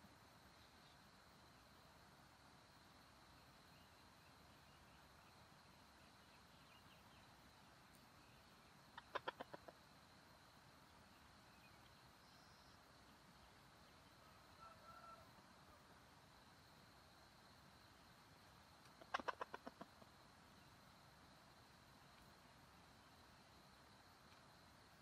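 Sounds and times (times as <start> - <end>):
junglefowl clucking: 8.9 - 9.9, 18.8 - 20.2.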